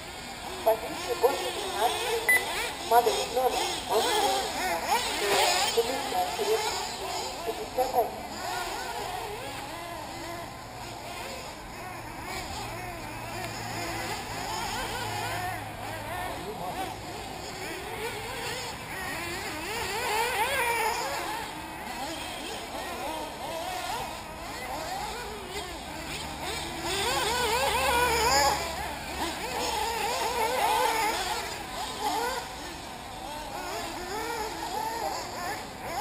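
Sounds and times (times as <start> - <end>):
model car engines whining: 0.0 - 36.0.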